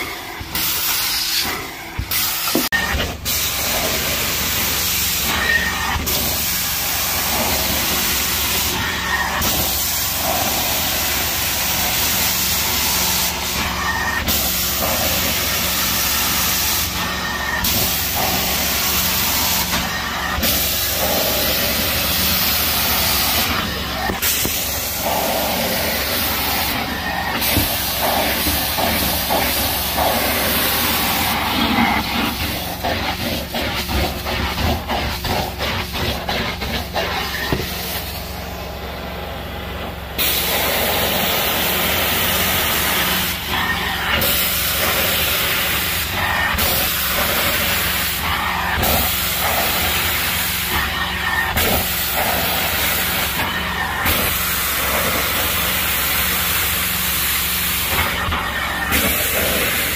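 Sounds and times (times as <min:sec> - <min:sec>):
suction hiss on carpet: 0:17.6 - 0:38.2, 0:40.2 - 0:43.4, 0:44.2 - 0:59.9.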